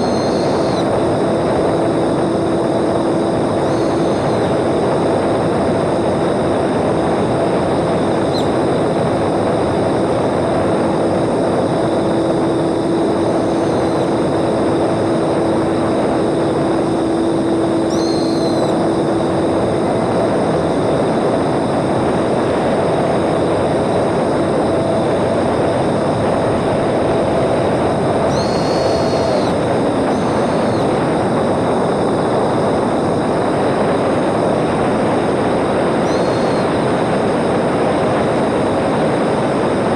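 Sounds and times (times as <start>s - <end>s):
high chirps: 0.0s - 0.9s, 3.6s - 4.5s, 17.9s - 18.8s, 28.3s - 31.0s
model airplane propeller rushing: 0.0s - 39.9s
steady motor hum: 0.0s - 39.9s.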